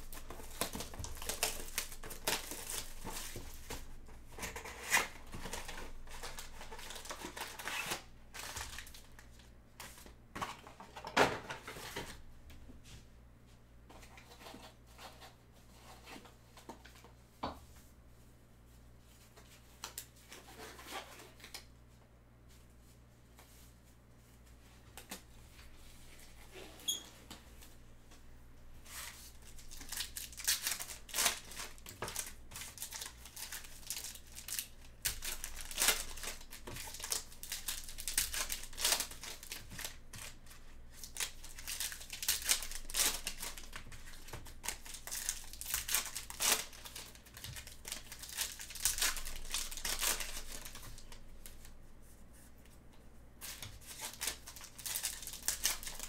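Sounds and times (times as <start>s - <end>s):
wrappers tearing and crinkling: 0.0s - 9.3s, 29.4s - 51.6s, 53.4s - 56.0s.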